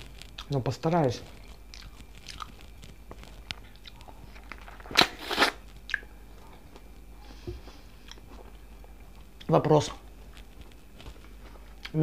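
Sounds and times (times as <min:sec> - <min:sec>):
faint chewing: 0:01.2 - 0:12.0
biting into a tomato: 0:03.5 - 0:06.1.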